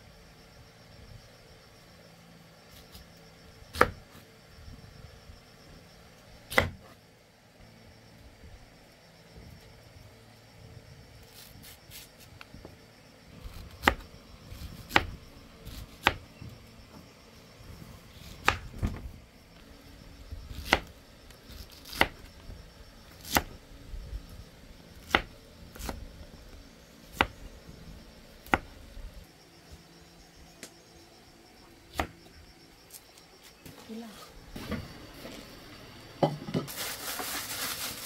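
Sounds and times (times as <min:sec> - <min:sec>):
knife chopping on wooden board: 0:06.5 - 0:06.8, 0:16.0 - 0:16.2, 0:25.0 - 0:26.0, 0:28.4 - 0:28.7.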